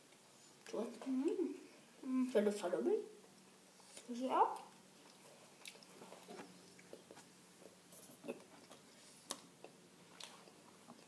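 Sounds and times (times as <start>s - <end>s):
faint chewing: 3.3s - 11.0s.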